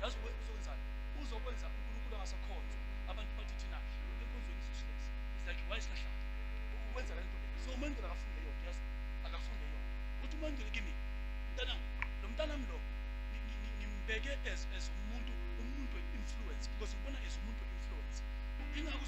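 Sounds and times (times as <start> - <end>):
electrical mains hum: 0.0 - 19.0
faint voices: 6.7 - 10.9, 11.6 - 19.0.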